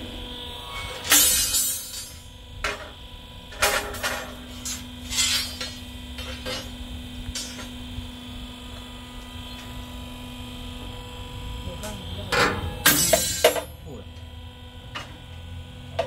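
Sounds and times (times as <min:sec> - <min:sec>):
steady electrical hum: 0:00.0 - 0:16.0
knocks and clattering scrapes: 0:03.6 - 0:07.8.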